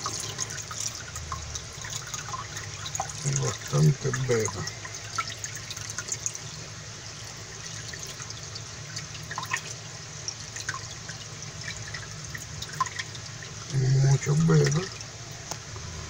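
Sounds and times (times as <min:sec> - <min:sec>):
water trickling and dripping: 0:00.0 - 0:15.9
low hum: 0:13.6 - 0:16.0.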